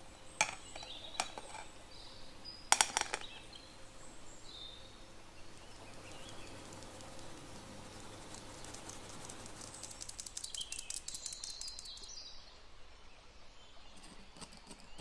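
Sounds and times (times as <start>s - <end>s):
bowl and sieve rims knocking: 0.4s - 1.7s, 2.7s - 3.4s
flour rustling in mesh sieve: 6.0s - 10.5s.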